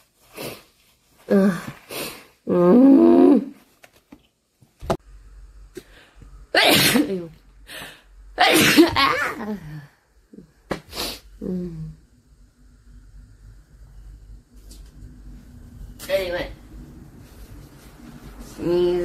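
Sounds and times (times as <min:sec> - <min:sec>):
woman sneezing: 0:06.6 - 0:07.3, 0:08.4 - 0:09.3.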